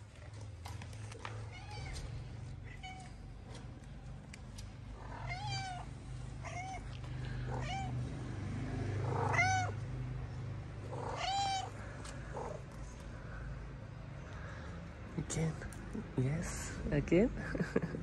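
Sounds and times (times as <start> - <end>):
cat meowing: 1.4 - 3.2, 5.0 - 8.0, 9.0 - 9.8, 10.8 - 12.6.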